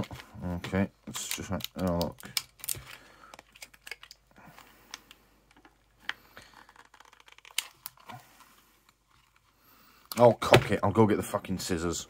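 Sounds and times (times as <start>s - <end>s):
blister pack clicks and crinkles: 0.0s - 8.2s.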